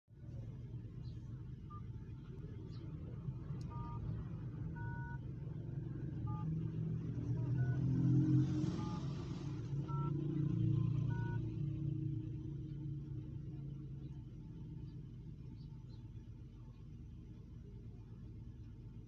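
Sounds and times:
phone keypad beeps: 3.7s - 4.0s, 4.8s - 5.2s, 6.3s - 6.5s, 8.8s - 9.0s, 11.1s - 11.4s.

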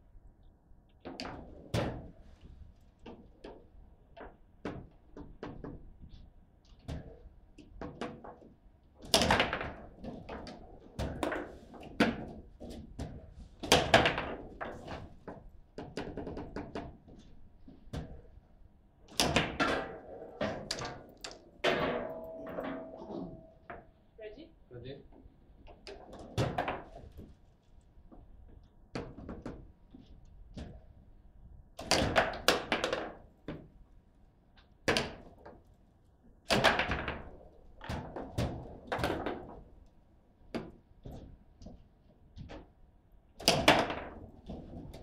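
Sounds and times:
foosball ball clacking: 19.1s - 23.8s.

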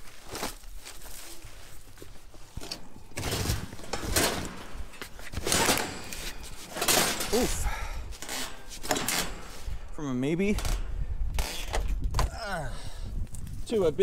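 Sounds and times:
metal chair clattering on scrap metal: 2.6s - 9.9s.

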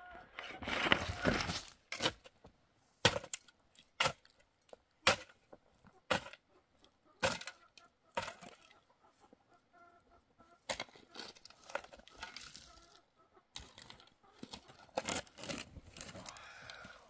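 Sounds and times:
soil and gravel scraping: 0.2s - 2.4s, 10.6s - 13.0s, 13.6s - 17.0s
mattock chopping stony soil: 0.6s - 2.3s, 3.0s - 4.4s, 5.0s - 5.4s, 6.1s - 6.4s, 7.2s - 7.6s, 8.2s - 8.6s, 10.7s - 12.6s, 13.6s - 16.6s.

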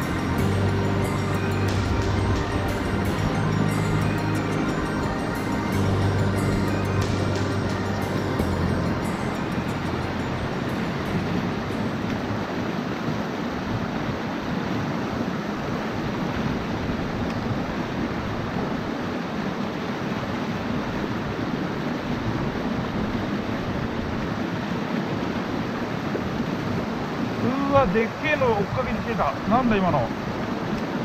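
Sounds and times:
stream water flowing: 0.0s - 31.0s.

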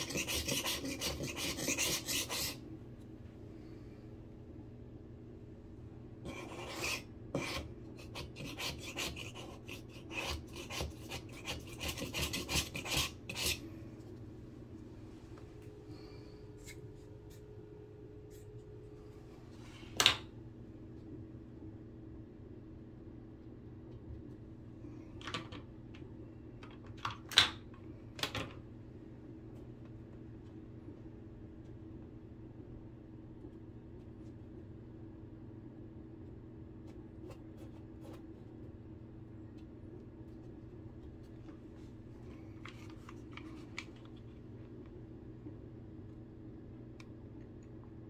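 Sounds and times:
scraper scraping drywall: 0.0s - 2.6s, 6.2s - 13.6s
low steady hum: 0.0s - 48.0s.

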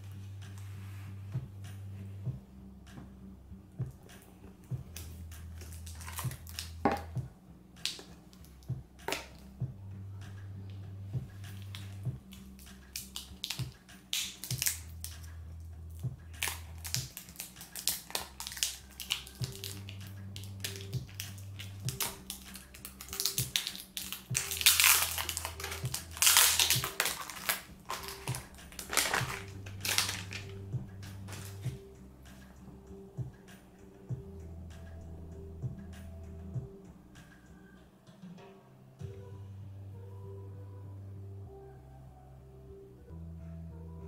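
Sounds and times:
soft background music with bass: 0.0s - 44.0s
packaging clicks and rustles: 16.4s - 30.6s.

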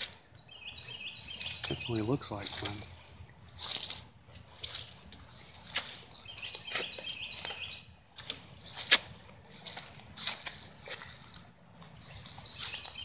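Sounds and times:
bird chirping: 0.0s - 3.4s, 5.7s - 8.0s, 11.9s - 13.0s
rustling through grass: 0.0s - 13.0s.

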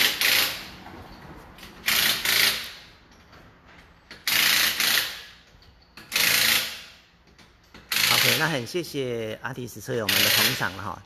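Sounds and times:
pneumatic impact wrench bursts: 0.0s - 0.7s, 1.8s - 3.0s, 4.1s - 5.4s, 6.0s - 7.1s, 7.7s - 8.6s, 10.1s - 10.7s.

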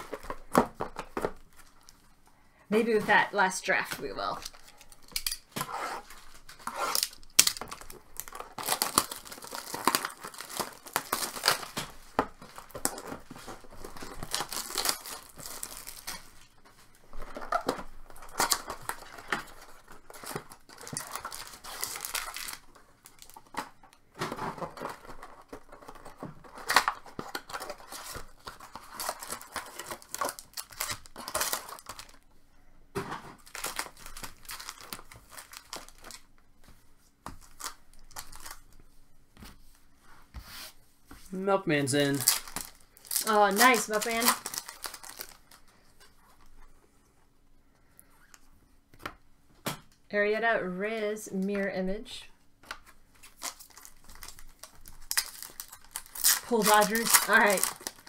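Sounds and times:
packaging torn and crinkled: 4.3s - 16.5s, 18.0s - 23.7s, 24.6s - 32.2s, 33.4s - 36.3s, 37.4s - 38.8s, 42.0s - 45.7s, 53.1s - 58.0s.

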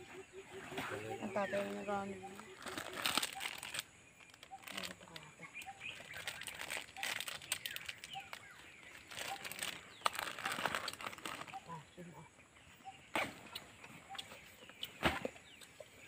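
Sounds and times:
faint bird chirps: 0.0s - 16.0s
rustling and crinkling handling: 0.6s - 11.8s.

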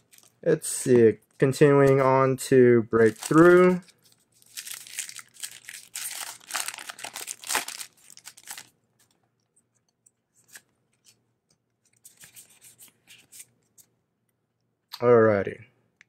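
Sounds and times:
foil wrapper tearing and crinkling: 3.0s - 8.7s.

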